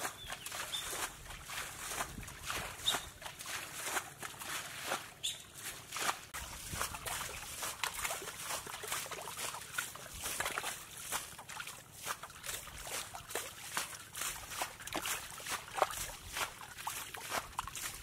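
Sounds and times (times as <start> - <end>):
wading through muddy water: 0.0 - 18.0.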